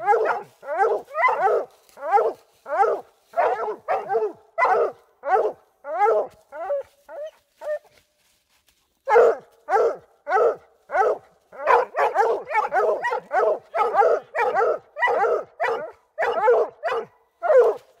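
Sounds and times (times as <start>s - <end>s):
dogs barking: 0.0s - 7.8s, 9.1s - 17.9s.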